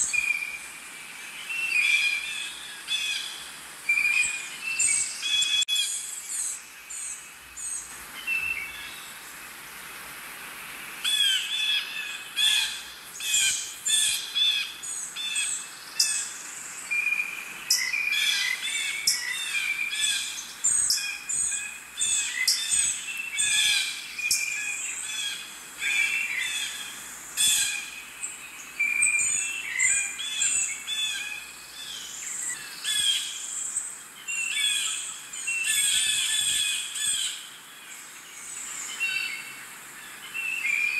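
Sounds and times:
wild birds chirping and calling: 11.0s - 40.9s.

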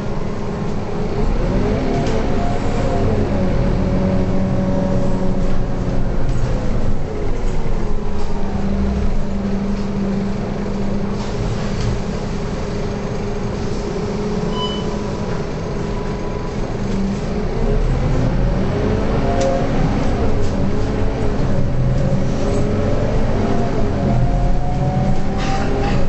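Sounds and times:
bus diesel engine drone: 0.0s - 26.0s
short high beep: 14.5s - 15.0s.

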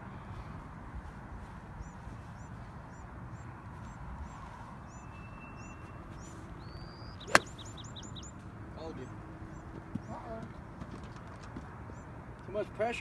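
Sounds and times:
outdoor background noise: 0.0s - 13.0s
bird chirping: 1.8s - 8.4s
golf club striking ball: 7.2s - 7.7s.

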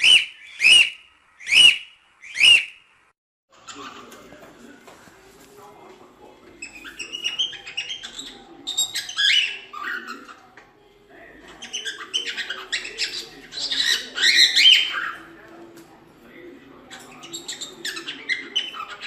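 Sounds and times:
cockatiel chirping and whistling: 0.0s - 2.8s, 6.6s - 10.2s, 11.6s - 15.2s.

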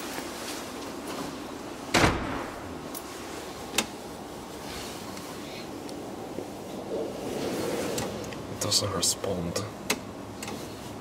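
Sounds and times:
elevator door thud: 1.9s - 2.8s.

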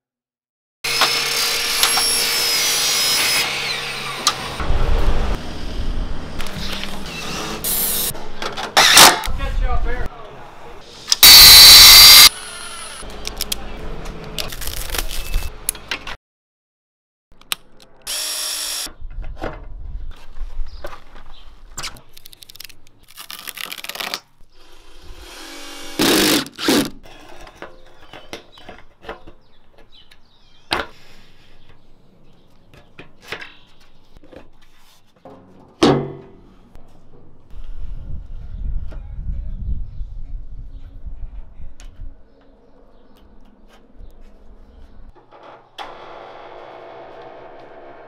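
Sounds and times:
cordless drill running: 11.2s - 13.0s, 18.1s - 18.9s, 24.7s - 26.7s.

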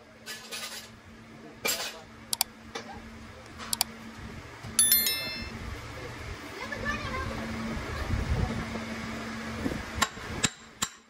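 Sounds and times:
bright ringing clink: 4.8s - 5.7s.

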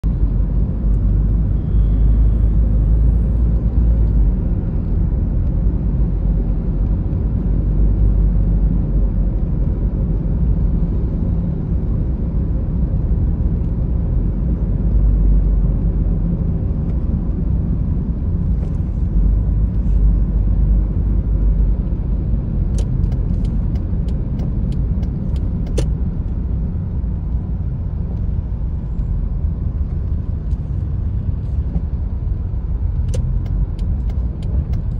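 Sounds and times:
car cabin road rumble: 0.0s - 34.9s.

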